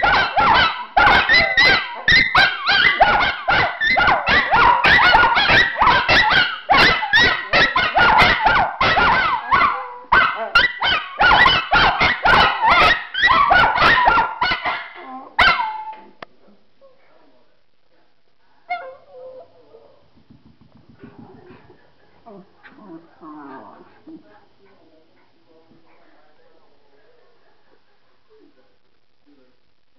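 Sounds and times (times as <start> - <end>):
dogs barking and howling: 0.0 - 16.0, 18.7 - 20.0.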